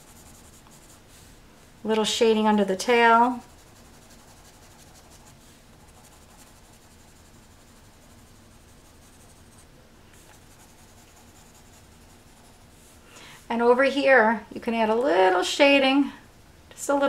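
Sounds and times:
pencil scratching on paper: 0.0s - 1.0s, 3.2s - 9.6s, 10.2s - 12.7s.

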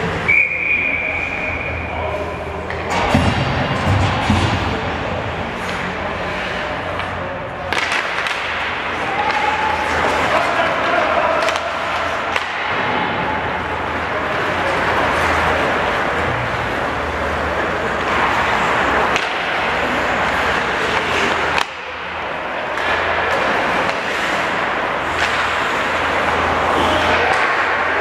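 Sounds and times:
hockey sticks or puck clacking: 0.0s - 28.0s
skate blades scraping ice: 5.3s - 12.6s, 13.3s - 28.0s.

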